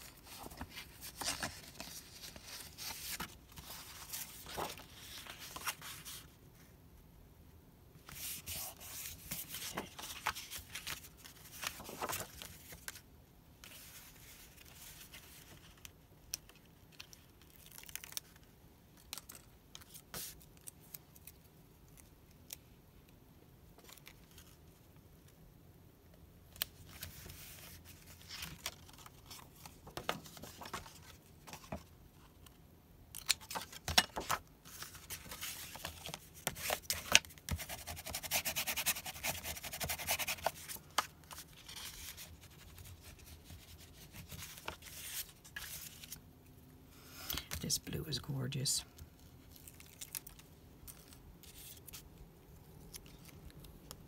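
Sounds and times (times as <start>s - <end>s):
paper rustling and sliding: 0.0s - 6.4s, 8.0s - 13.0s, 26.9s - 31.9s, 33.3s - 46.2s.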